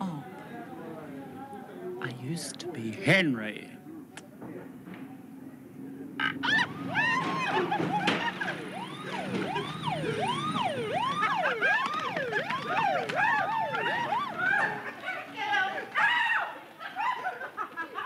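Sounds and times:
siren-like wailing tones: 0:06.2 - 0:15.0.

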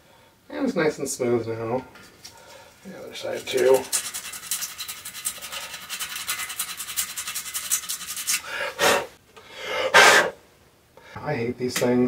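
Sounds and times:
sandpaper scratching on metal rim: 0:03.2 - 0:09.1.

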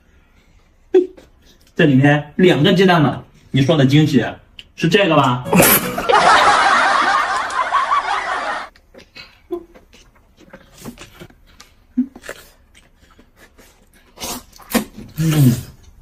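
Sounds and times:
soft eating sounds: 0:00.0 - 0:01.8, 0:08.7 - 0:16.0
laughter: 0:05.5 - 0:08.7.

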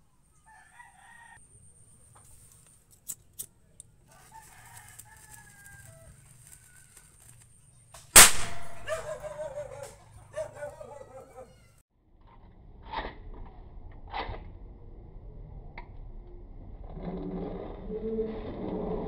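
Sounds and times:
rooster crowing: 0:00.4 - 0:01.5, 0:04.1 - 0:07.2
firecracker bang: 0:08.1 - 0:09.3.

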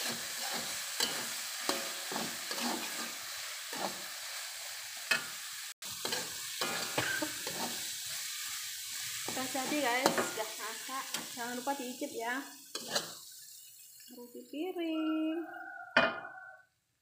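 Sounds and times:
metal spatula scraping pan: 0:00.0 - 0:04.2, 0:05.1 - 0:11.4, 0:12.7 - 0:13.3
meatballs sizzling in a wok: 0:00.0 - 0:15.7.

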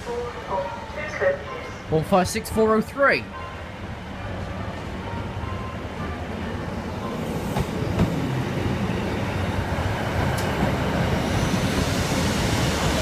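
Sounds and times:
diesel train engine rumbling: 0:00.0 - 0:13.0.

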